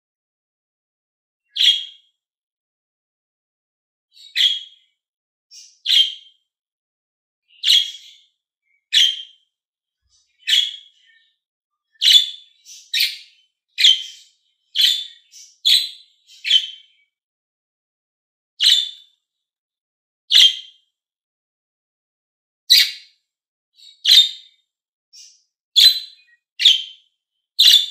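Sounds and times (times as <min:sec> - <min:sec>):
budgerigars chirping: 0:01.6 - 0:01.9, 0:04.3 - 0:04.8, 0:05.6 - 0:06.3, 0:07.6 - 0:08.2, 0:08.9 - 0:09.3, 0:10.4 - 0:11.1, 0:12.0 - 0:16.9, 0:18.6 - 0:19.0, 0:20.3 - 0:20.6, 0:22.7 - 0:23.0, 0:24.0 - 0:24.4, 0:25.2 - 0:26.9, 0:27.6 - 0:27.9.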